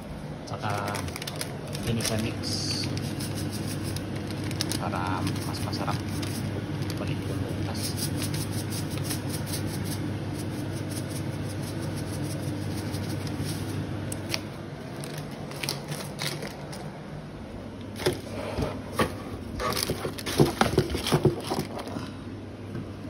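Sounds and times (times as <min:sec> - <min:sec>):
steady low hum: 0:00.0 - 0:23.0
pot crackling on stove: 0:00.8 - 0:16.7
items knocking and rustling: 0:17.9 - 0:22.0.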